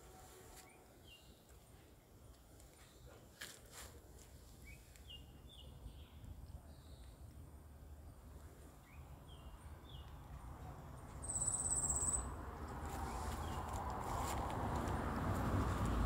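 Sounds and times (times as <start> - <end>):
rustling: 2.5 - 5.1, 12.7 - 16.0
bird chirps: 11.2 - 12.3.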